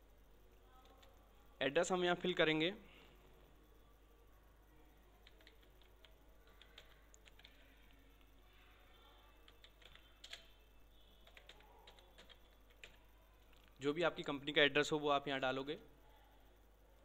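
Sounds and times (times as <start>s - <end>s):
computer keyboard typing: 0.8s - 1.2s, 5.2s - 7.8s, 9.4s - 13.7s.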